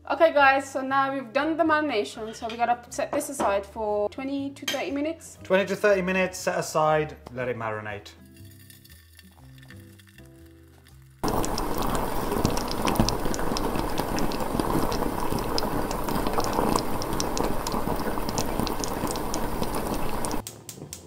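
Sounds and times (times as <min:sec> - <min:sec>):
water boiling in a pot: 0:11.0 - 0:20.6.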